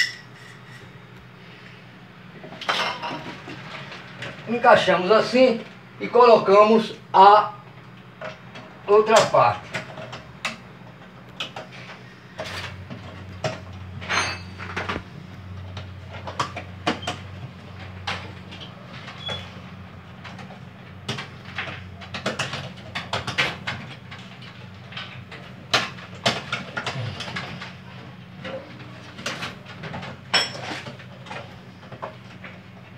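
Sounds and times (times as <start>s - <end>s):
plastic parts clicking and clattering: 20.2s - 32.6s.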